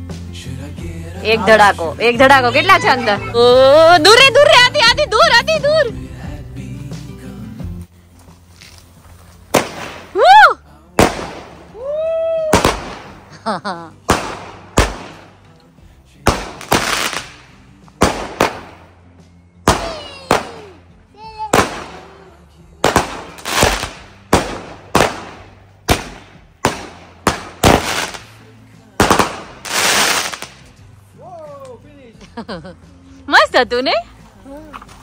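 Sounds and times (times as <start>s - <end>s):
fireworks bangs: 9.5s - 10.2s, 11.0s - 11.8s, 12.5s - 13.3s, 14.0s - 15.4s, 16.2s - 18.8s, 19.7s - 20.7s, 21.5s - 22.1s, 22.8s - 28.4s, 29.0s - 30.6s
hissing crackling firework burst: 22.9s - 25.3s, 27.6s - 28.4s, 29.0s - 30.6s.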